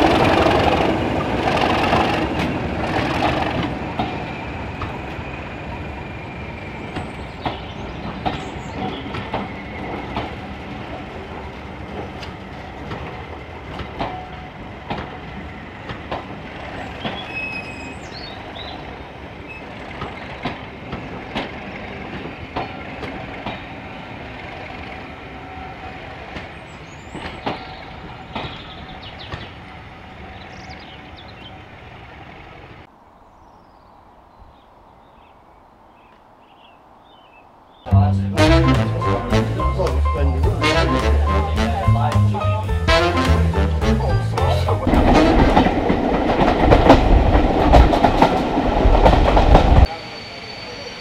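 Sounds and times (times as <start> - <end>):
clicks and knocks of train: 0.0 - 32.6, 44.4 - 50.0
train wheels rumbling on rail: 0.0 - 32.9, 38.4 - 51.0
wheel squeal: 8.3 - 10.7, 17.0 - 18.3, 49.8 - 51.0
faint high chirps: 49.9 - 51.0.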